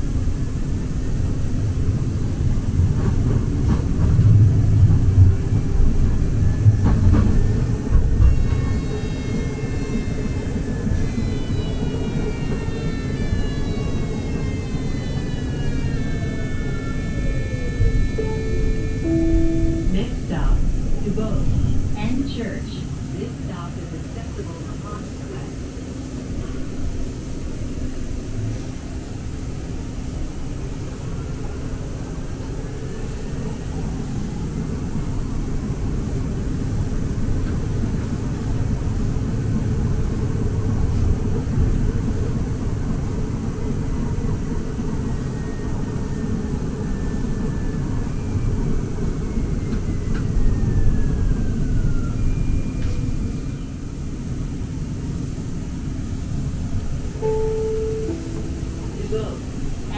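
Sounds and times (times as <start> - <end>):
light-rail train rumble: 0.0 - 59.9
thin whining tones gliding down: 8.9 - 20.3, 57.2 - 59.8.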